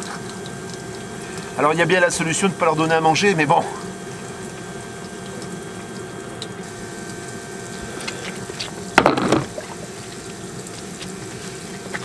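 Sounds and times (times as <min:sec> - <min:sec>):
water running through hose: 0:00.0 - 0:12.0
plastic container clatter on concrete: 0:09.0 - 0:09.6.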